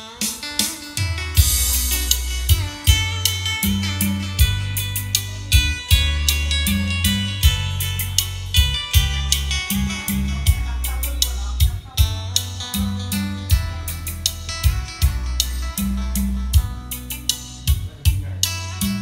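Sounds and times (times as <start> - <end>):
song with guitar bass and drums: 0.0 - 19.0.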